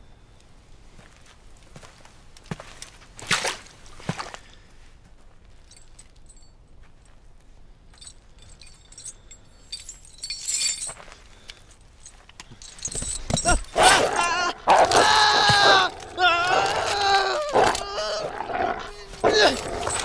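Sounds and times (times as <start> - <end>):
metal chain clinking: 5.5 - 6.6, 7.9 - 20.0.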